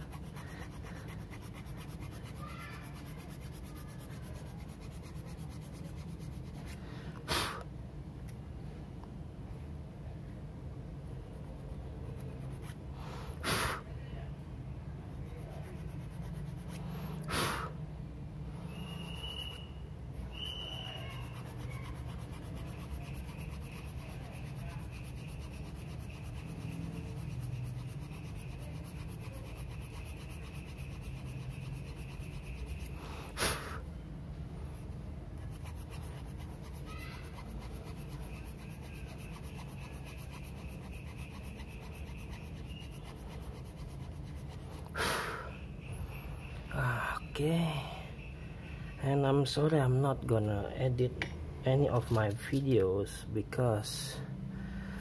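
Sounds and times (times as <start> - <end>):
hand file rubbing on plastic: 0.0 - 6.8, 20.2 - 33.5, 35.4 - 45.0.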